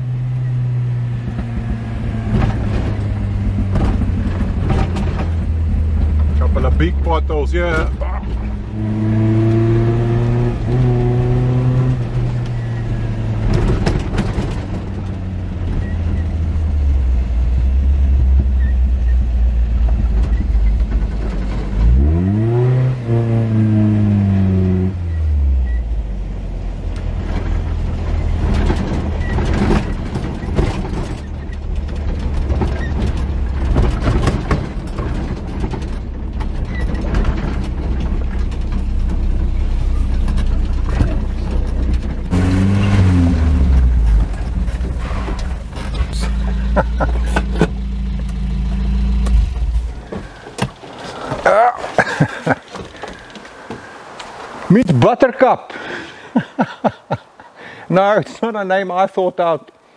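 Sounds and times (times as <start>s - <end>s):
truck engine running: 0.0s - 9.4s, 25.6s - 52.7s
truck knocking and rattling: 0.8s - 22.9s, 26.7s - 53.4s.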